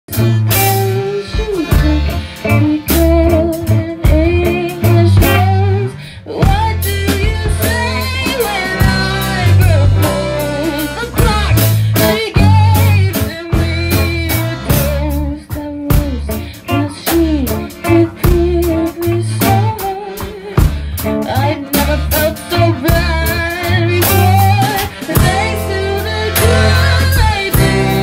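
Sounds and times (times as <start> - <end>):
bass: 0.0 - 28.0
drums: 0.0 - 28.0
guitar: 0.0 - 28.0
person singing: 0.1 - 28.0.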